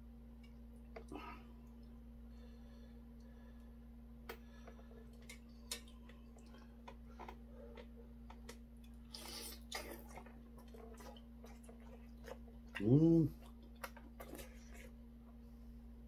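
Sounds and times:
steady low hum: 0:00.0 - 0:16.0
chewing: 0:04.3 - 0:15.0.

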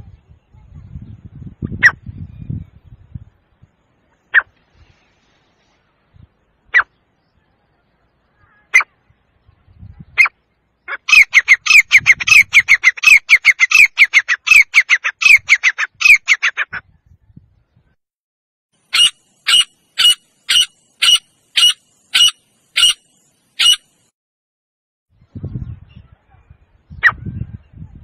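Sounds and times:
francolin calling: 0:10.2 - 0:16.6, 0:18.8 - 0:24.1.

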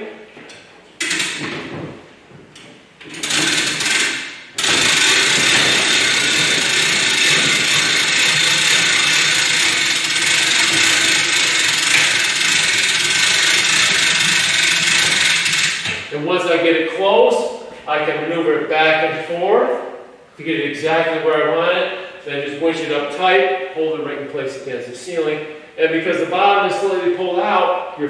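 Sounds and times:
winch ratchet clattering: 0:01.0 - 0:01.6, 0:03.0 - 0:16.1.

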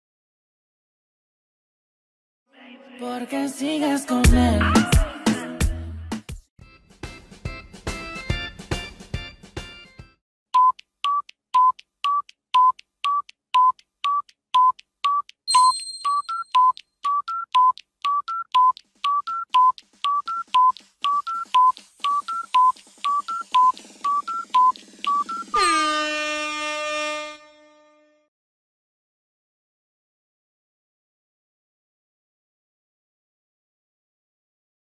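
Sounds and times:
short electronic beeps: 0:10.6 - 0:26.1
loud horn-like blast: 0:25.6 - 0:28.2.

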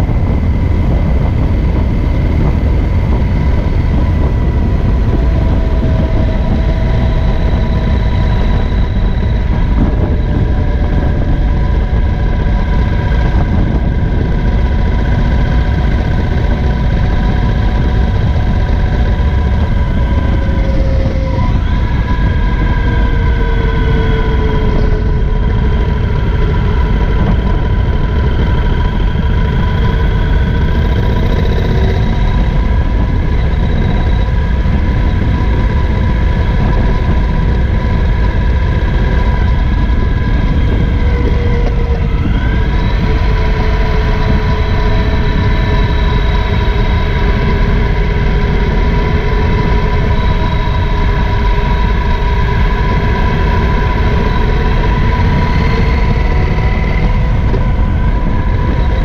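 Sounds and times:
motorcycle engine running: 0:00.0 - 0:59.0
wind: 0:00.0 - 0:59.0.

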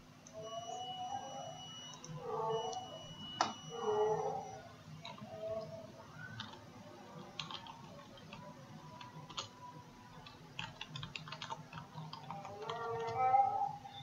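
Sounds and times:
faint keyboard typing: 0:05.0 - 0:13.5.

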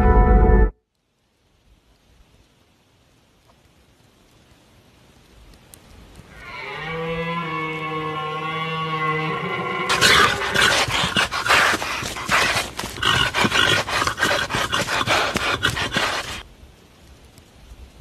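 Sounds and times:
animal growling and snarling: 0:09.9 - 0:16.4.

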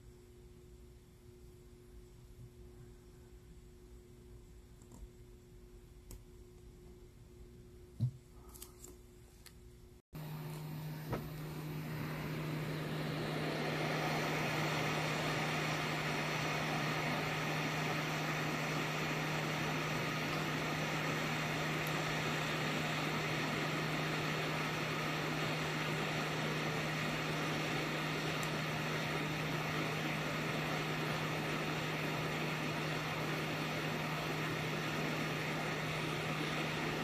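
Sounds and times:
hot air station blowing air: 0:10.2 - 0:37.0
low blower hum: 0:10.2 - 0:37.0.

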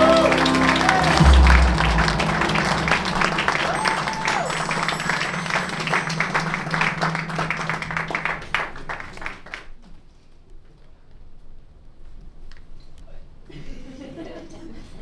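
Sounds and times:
low held music note: 0:00.0 - 0:08.2
audience applauding: 0:00.0 - 0:09.8.

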